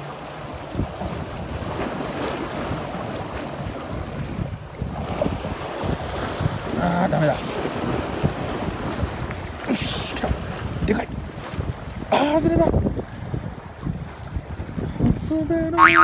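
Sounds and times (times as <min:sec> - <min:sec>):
sea waves splashing on concrete: 0:00.0 - 0:12.1
wind buffeting microphone: 0:00.0 - 0:15.8.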